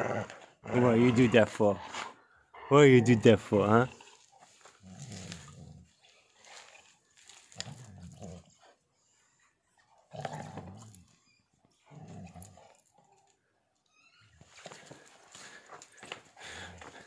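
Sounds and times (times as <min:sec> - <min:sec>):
dog growling low: 0:00.0 - 0:06.0, 0:07.5 - 0:08.6, 0:10.1 - 0:11.1, 0:11.8 - 0:13.0.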